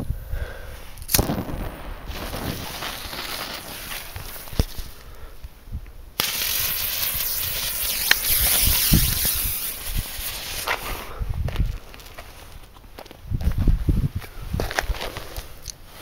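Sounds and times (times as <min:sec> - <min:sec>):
firework hiss: 0:00.9 - 0:05.4, 0:06.2 - 0:11.2
sharp pop: 0:01.1 - 0:02.7.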